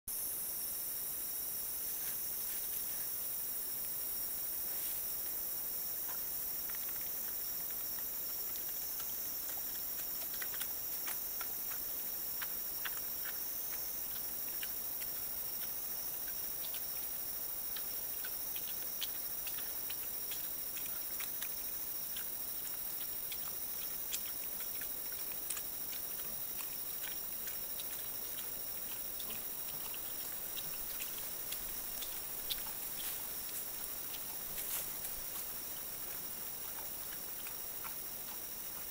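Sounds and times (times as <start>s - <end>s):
steady high-pitched hiss: 0.1s - 38.9s
boar crunching and rooting: 3.9s - 38.9s.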